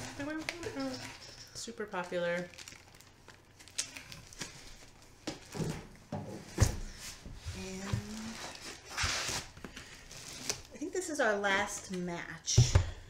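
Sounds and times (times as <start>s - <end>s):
books handled and set down: 5.2s - 9.9s.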